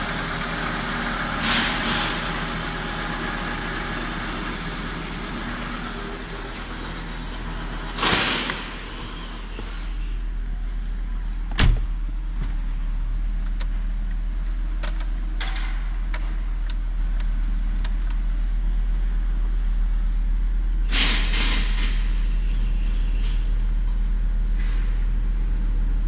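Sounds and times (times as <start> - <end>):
engine idling: 0.0 - 15.1.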